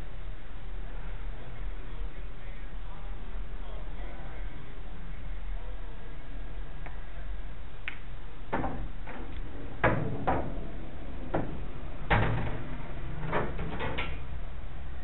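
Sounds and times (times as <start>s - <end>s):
pool balls clacking: 7.9s - 14.4s.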